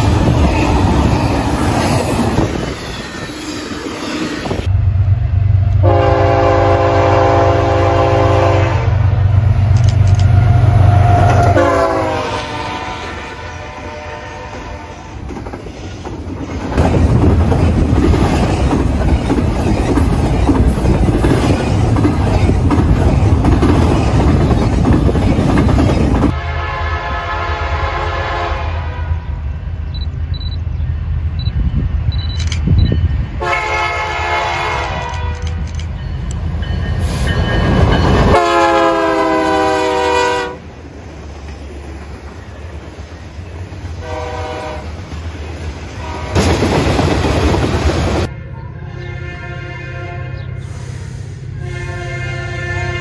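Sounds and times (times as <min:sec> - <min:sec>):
train wheels on rail: 0:00.0 - 0:26.4, 0:29.9 - 0:48.3
locomotive air horn blasts: 0:05.8 - 0:09.1, 0:10.3 - 0:15.2, 0:26.3 - 0:29.4, 0:33.4 - 0:35.6, 0:38.3 - 0:40.6, 0:44.0 - 0:45.0, 0:46.0 - 0:46.5, 0:48.2 - 0:53.0.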